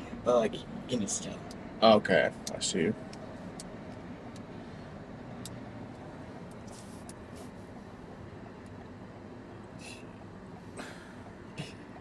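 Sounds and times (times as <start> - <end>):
car cabin low hum: 0.0 - 12.0
soft rustles: 6.4 - 7.9.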